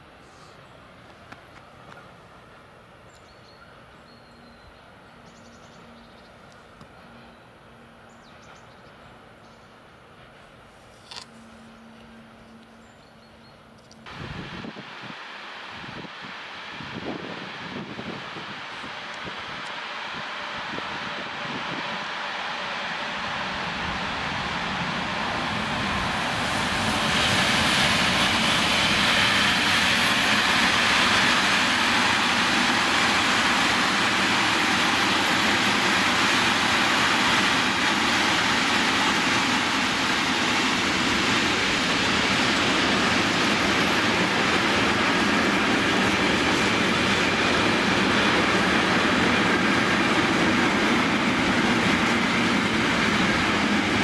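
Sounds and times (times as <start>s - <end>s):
train wheels rolling on rails: 0.0s - 54.0s.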